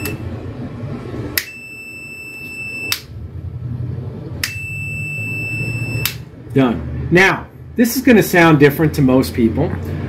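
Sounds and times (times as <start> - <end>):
high continuity beep: 1.4 - 3.0, 4.4 - 6.2.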